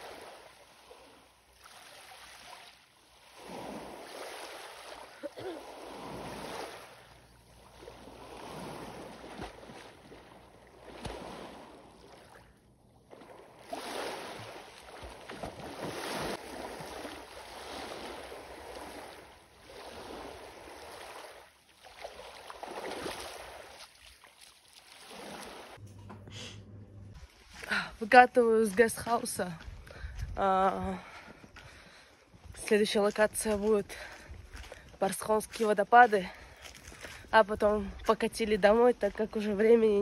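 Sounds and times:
lake waves washing against shore: 0.0s - 12.5s, 13.1s - 25.8s.

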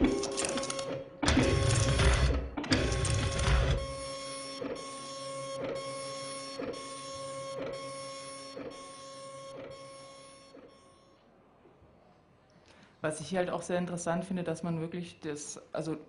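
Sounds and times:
music played on dot matrix printers: 0.0s - 11.2s.

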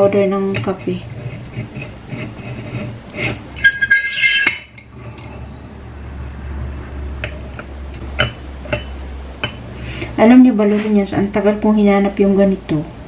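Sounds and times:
metal filter scraping with squeal: 0.8s - 5.9s.

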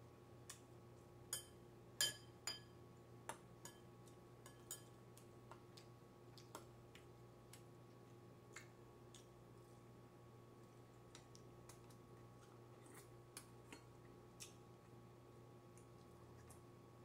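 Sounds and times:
faint steady hum: 0.0s - 17.0s
metal spoon clinking on ceramic bowl: 1.3s - 2.8s, 3.6s - 5.0s
utensils tapping on dishes: 4.4s - 5.0s.

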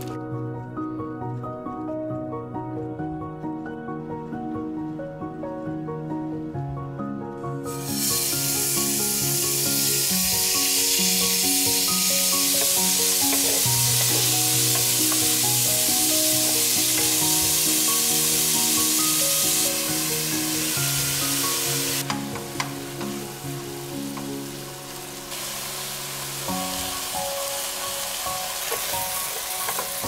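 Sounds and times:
gentle background music: 0.0s - 30.0s
meat sizzling in oil: 7.8s - 30.0s.

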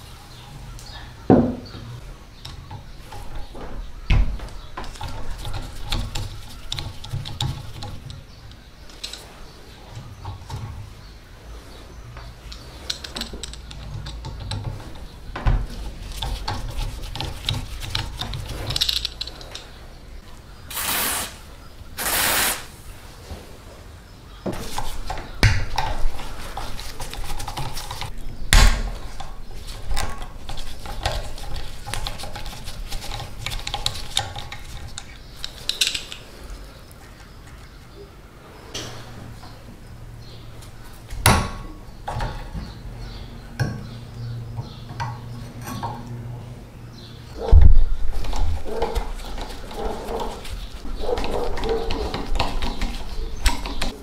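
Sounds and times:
sharp knocks: 1.3s - 1.8s
steel tools clicking and scraping: 4.8s - 10.7s, 12.2s - 19.8s, 29.2s - 37.7s, 48.1s - 54.0s
spray can hissing: 20.7s - 21.4s, 22.0s - 22.8s.

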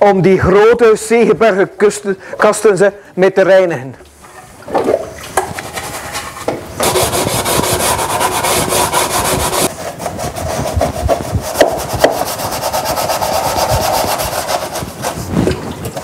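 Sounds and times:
stiff brush scrubbing plastic: 5.4s - 16.0s.

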